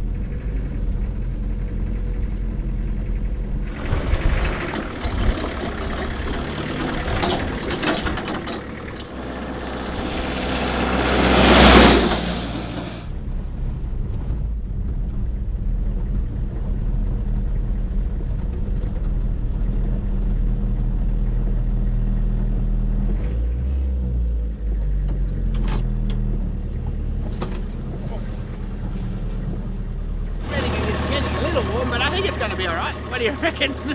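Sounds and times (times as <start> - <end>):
truck engine droning from inside: 0.0 - 33.9
truck passing on wet road: 3.6 - 23.0, 28.2 - 33.9.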